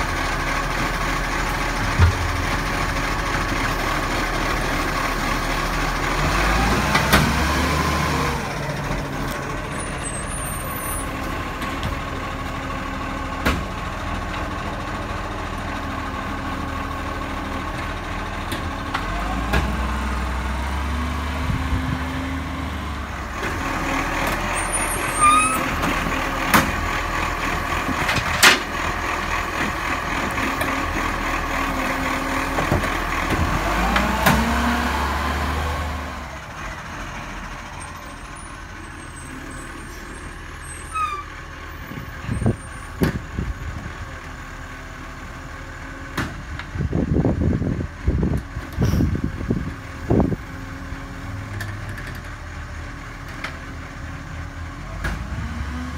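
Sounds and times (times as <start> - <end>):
garbage truck engine running: 0.0 - 55.9.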